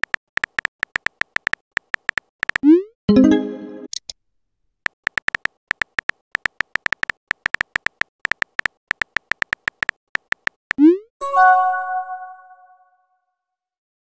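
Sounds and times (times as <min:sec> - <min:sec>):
keyboard tap clicks: 0:00.0 - 0:02.7, 0:05.0 - 0:10.6.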